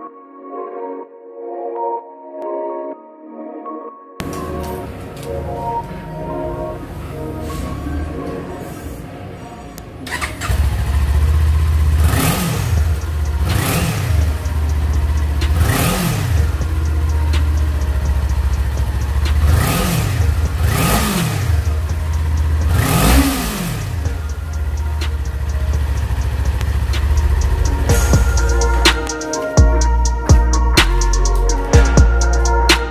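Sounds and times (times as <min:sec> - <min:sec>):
motorcycle engine idling: 0:10.1 - 0:29.0.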